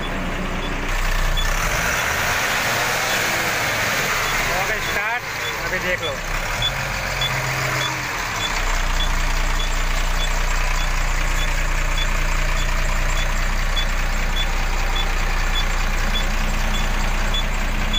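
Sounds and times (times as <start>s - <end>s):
truck diesel engine running: 0.0s - 17.9s.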